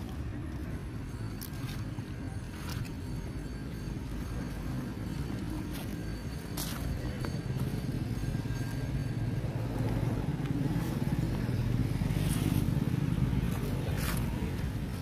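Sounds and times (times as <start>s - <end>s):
engine humming: 0.0s - 15.0s.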